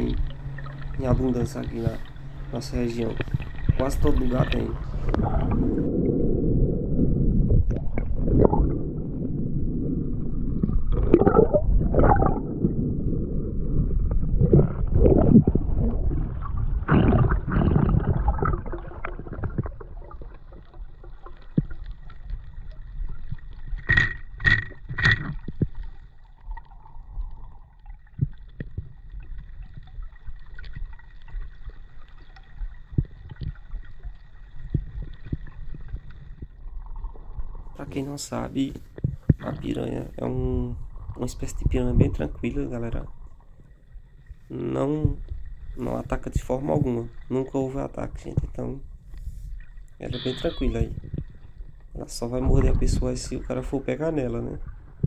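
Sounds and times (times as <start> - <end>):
faint steady whine: 0.0 - 17.4
underwater hush: 0.0 - 21.8, 48.9 - 52.0
water gurgling and sloshing: 0.0 - 55.0.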